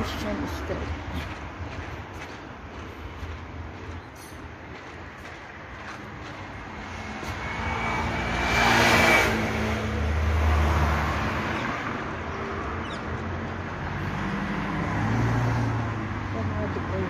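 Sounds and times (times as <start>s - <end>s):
vehicle passing: 0.0s - 17.0s.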